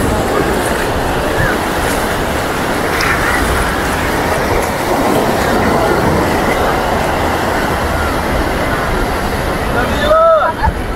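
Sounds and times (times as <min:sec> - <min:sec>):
steady low rumble: 0:00.0 - 0:09.9
crowd chatter: 0:00.0 - 0:10.9
waves washing on shore: 0:00.0 - 0:10.9.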